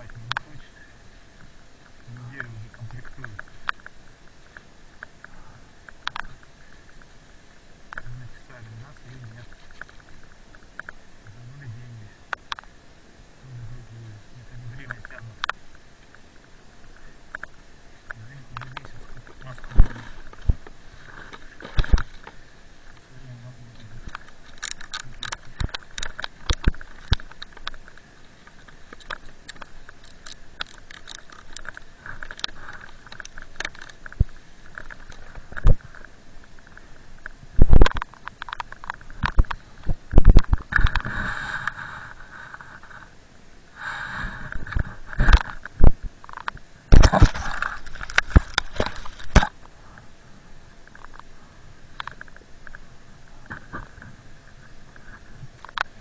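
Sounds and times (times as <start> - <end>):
rushing hiss: 40.7 - 45.3.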